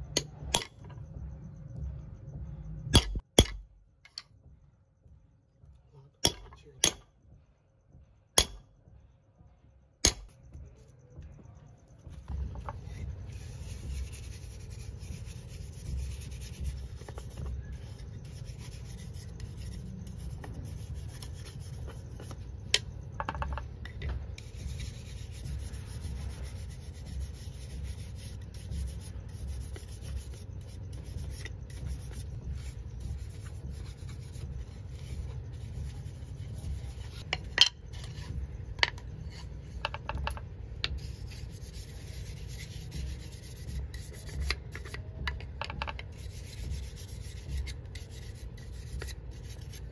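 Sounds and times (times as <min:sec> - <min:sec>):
pad rubbing wooden spatula: 0:12.2 - 0:49.9.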